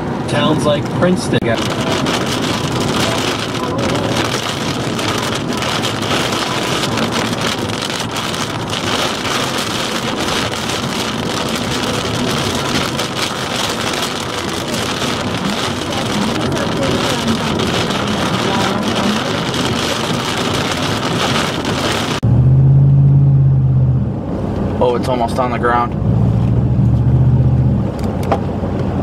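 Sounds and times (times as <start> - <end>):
road and tyre noise: 0.0 - 29.0
rain pattering on car: 0.2 - 22.2.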